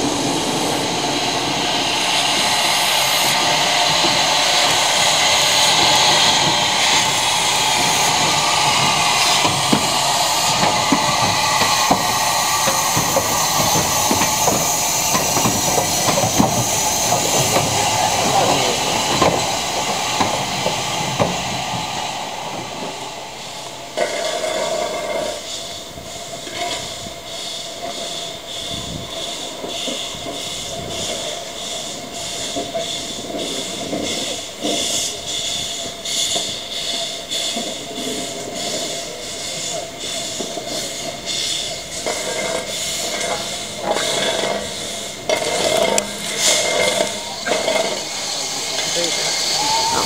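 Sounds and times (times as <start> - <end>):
rail clatter: 0.0 - 25.6, 28.8 - 50.0
steam locomotive hissing: 0.0 - 50.0
steady tone: 42.2 - 50.0
sharp metal clank: 43.8 - 48.9.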